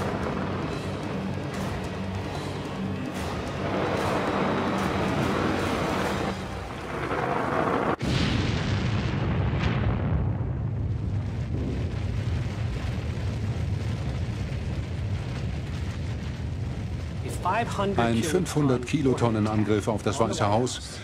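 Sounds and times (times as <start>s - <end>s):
rushing noise: 0.0s - 9.1s
explosion: 0.0s - 19.5s
deep rumble: 0.0s - 20.1s.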